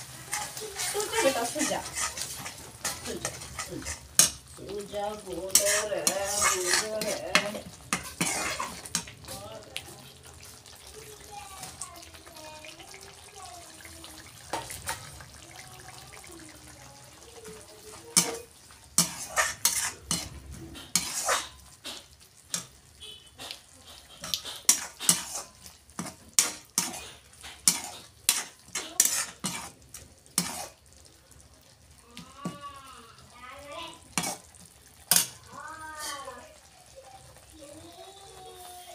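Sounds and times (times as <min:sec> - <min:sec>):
metal spatula scraping a pan: 0:00.0 - 0:10.6, 0:14.4 - 0:15.4, 0:17.2 - 0:31.1, 0:33.9 - 0:36.6.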